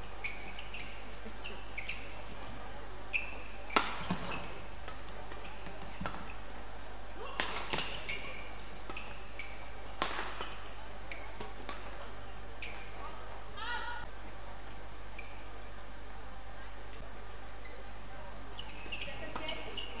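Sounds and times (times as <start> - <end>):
shoes squeaking on court: 0.1 - 2.5, 3.1 - 6.6, 7.5 - 13.0, 15.2 - 15.5, 17.6 - 20.0
racket striking shuttlecock: 3.7 - 6.3, 7.3 - 9.1, 10.0 - 10.6.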